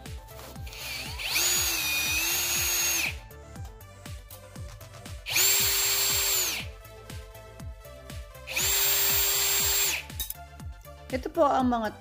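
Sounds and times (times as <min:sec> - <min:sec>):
background music with bass beat: 0:00.0 - 0:01.3, 0:02.6 - 0:12.0
cordless drill running: 0:00.6 - 0:03.2, 0:05.2 - 0:06.8, 0:08.5 - 0:10.1.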